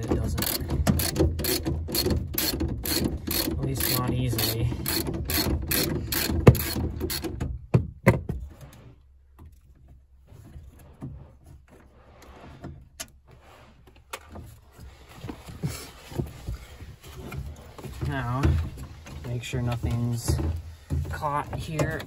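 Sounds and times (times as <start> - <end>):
ratchet wrench clicking: 0.4 - 7.3.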